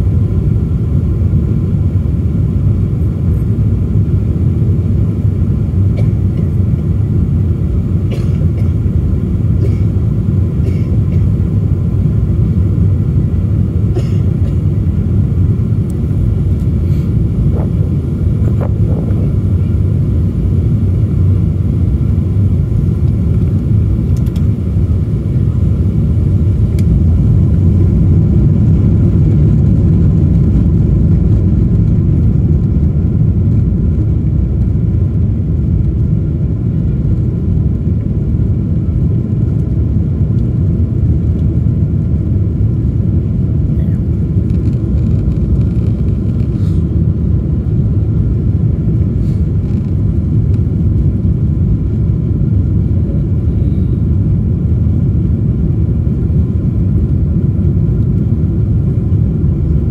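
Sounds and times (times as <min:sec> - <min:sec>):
jet engine rumble inside cabin: 0:00.0 - 0:59.9.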